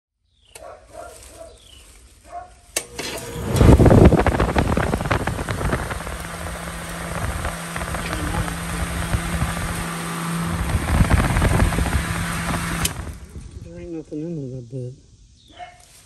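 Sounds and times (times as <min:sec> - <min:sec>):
air conditioner running: 0:02.8 - 0:14.0.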